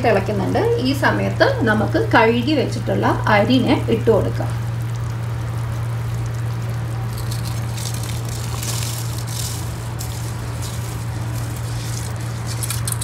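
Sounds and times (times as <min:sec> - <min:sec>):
broth boiling in a pot: 0:00.0 - 0:13.0
rice pattering into liquid: 0:04.6 - 0:13.0.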